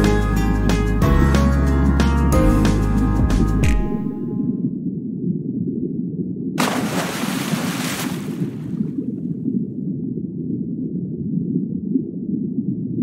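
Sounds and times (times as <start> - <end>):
ocean low rumble: 3.8 - 13.0.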